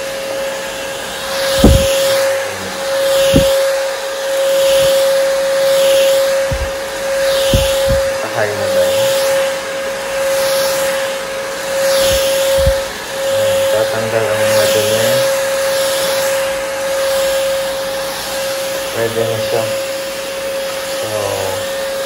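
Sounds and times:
vacuum cleaner motor whine: 0.0s - 22.0s
rush of air on doormat: 1.2s - 18.9s
low thumps: 1.5s - 2.4s, 3.1s - 3.6s, 4.7s - 5.0s, 6.4s - 8.2s, 12.0s - 13.0s.

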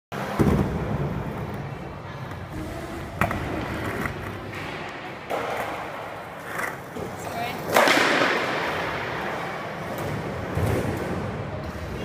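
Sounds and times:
skateboard wheels rolling on concrete: 0.2s - 12.0s
skateboard clack: 3.1s - 12.0s.

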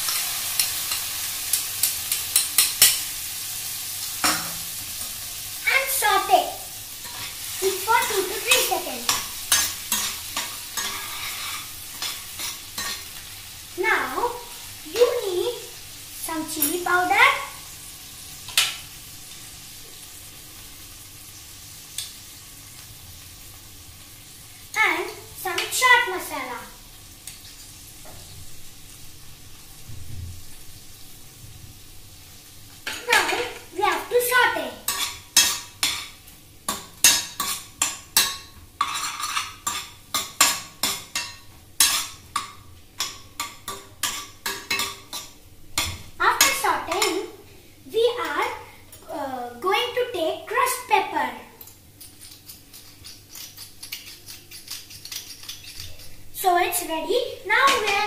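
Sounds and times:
metal spoon scraping frying pan: 0.0s - 3.1s, 7.0s - 13.2s, 34.9s - 36.1s, 36.7s - 47.2s, 52.0s - 56.3s
corn sizzling in frying pan: 0.0s - 58.0s.

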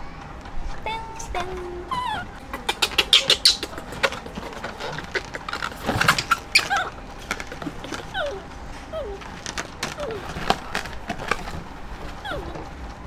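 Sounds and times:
rustling and clicking in basket: 0.0s - 13.0s
monkey squeaks: 1.9s - 9.2s.

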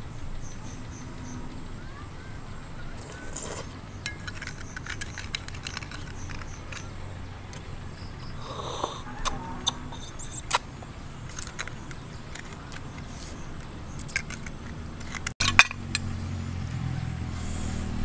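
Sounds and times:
metal spoon scraping food: 3.0s - 6.9s, 8.6s - 10.6s
mouth sounds: 8.4s - 10.7s.

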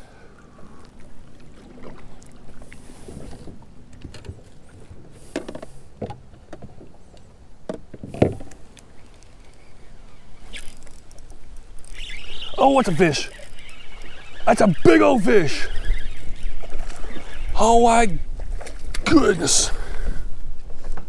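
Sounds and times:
fishing rod and reel knocking: 7.7s - 17.6s.

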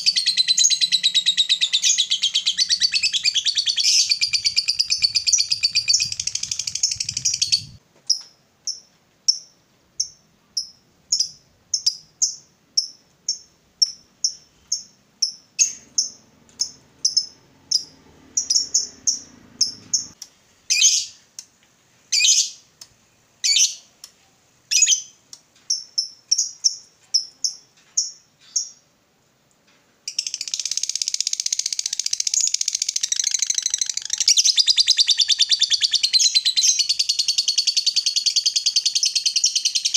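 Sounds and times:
bird chattering trill: 0.0s - 7.8s, 13.3s - 20.2s, 30.2s - 39.9s
downward-sweeping bird calls: 0.0s - 7.8s, 15.6s - 21.2s, 30.4s - 39.9s
sharp bird chirps: 0.0s - 21.2s, 30.1s - 39.9s.

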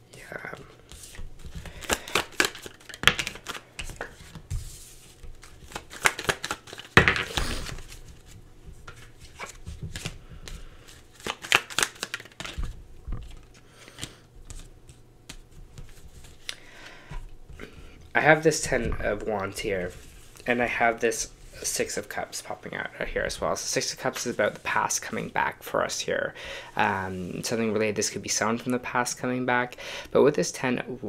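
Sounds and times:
cards being shuffled: 0.2s - 16.6s.

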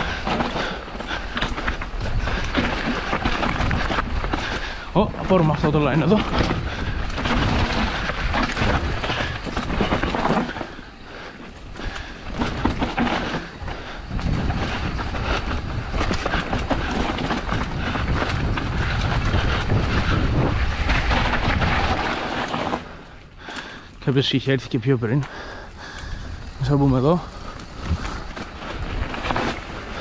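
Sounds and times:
bike rattling: 0.0s - 30.0s
tyres crunching over stones: 0.0s - 30.0s
wind on microphone: 11.8s - 22.5s.

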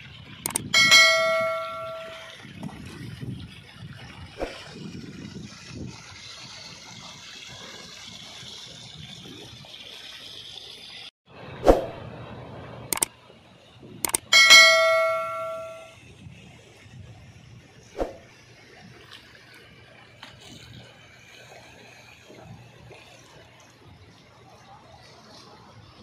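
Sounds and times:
rushing water and wind: 0.0s - 10.4s, 11.5s - 26.0s
mouse clicks: 0.5s - 0.7s, 14.0s - 14.2s
loud bell ding: 0.6s - 2.4s, 14.2s - 15.9s.

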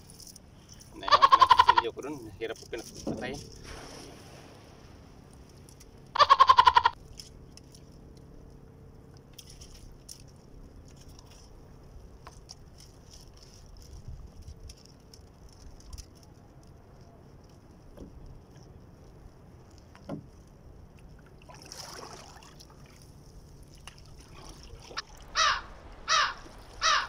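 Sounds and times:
fishing line ticks and rustles: 0.0s - 3.9s, 5.2s - 6.2s, 6.9s - 27.0s
wavering animal bleat: 1.0s - 1.9s.

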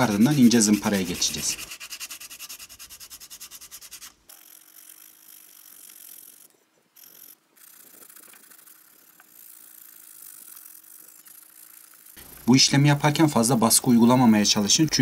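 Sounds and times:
sandpaper rasping on filler: 0.0s - 5.3s.

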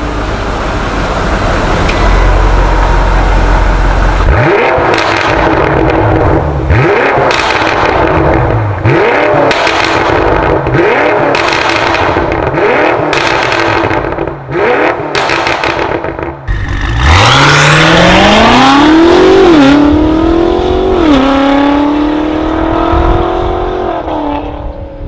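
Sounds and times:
car engine revving: 0.0s - 25.0s
exhaust pops and crackles: 4.6s - 16.5s.

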